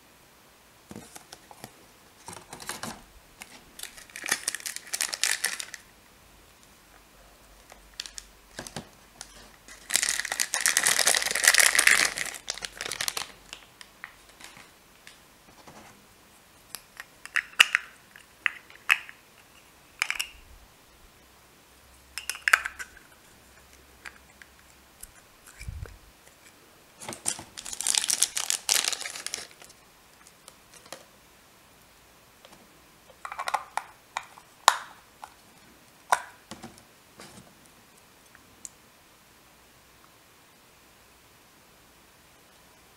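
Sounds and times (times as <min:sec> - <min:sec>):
plastic crinkling: 0:00.9 - 0:05.9, 0:07.6 - 0:15.8, 0:25.5 - 0:31.1.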